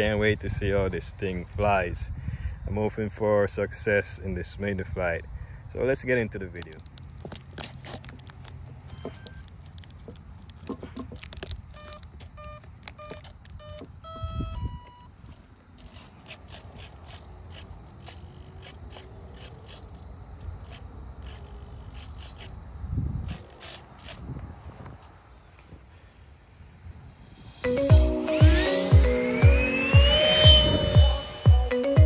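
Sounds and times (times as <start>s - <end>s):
foam airframe scraping and clicking: 6.6s - 13.8s, 15.2s - 22.6s
electronic arming beeps: 8.9s - 9.5s, 11.7s - 15.1s, 27.2s - 32.0s.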